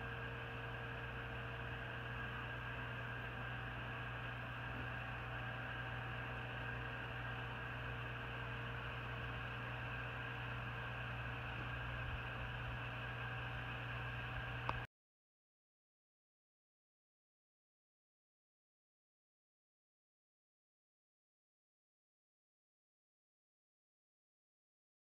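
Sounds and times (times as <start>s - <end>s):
circulation fans humming: 0.0s - 14.9s.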